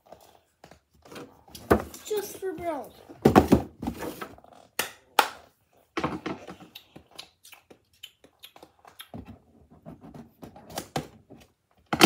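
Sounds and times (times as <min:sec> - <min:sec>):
box knocking on wooden floor: 0:03.2 - 0:04.0.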